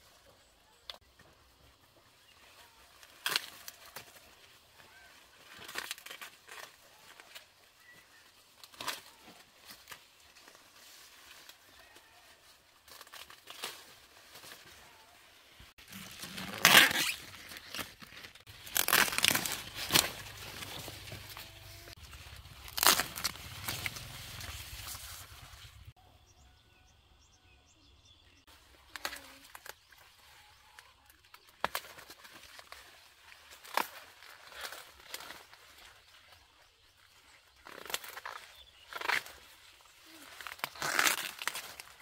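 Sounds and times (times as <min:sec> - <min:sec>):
dry corn leaves rustling: 0:00.0 - 0:26.0, 0:28.5 - 0:42.0
husks snapping and tearing: 0:03.0 - 0:10.6, 0:12.8 - 0:14.7, 0:15.8 - 0:25.3, 0:31.3 - 0:35.6, 0:37.6 - 0:42.0.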